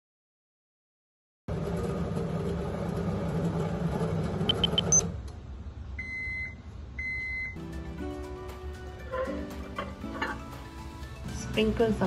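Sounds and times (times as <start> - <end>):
microwave oven humming: 1.5 - 11.1
longer lower beeps: 4.5 - 5.0, 6.0 - 7.6
quick high beeps: 4.5 - 5.0
background music: 7.6 - 12.0.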